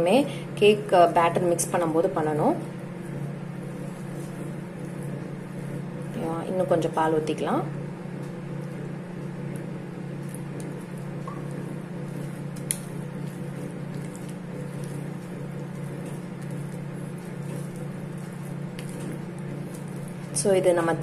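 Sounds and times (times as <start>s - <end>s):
oven hum: 0.0s - 21.0s
spatula folding batter: 8.3s - 20.5s.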